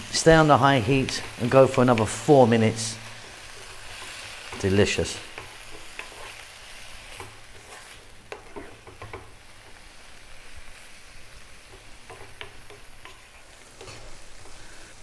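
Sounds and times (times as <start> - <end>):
vegetables sizzling in a wok: 0.0 - 15.0
spatula scraping pan: 3.0 - 9.7, 11.6 - 14.8.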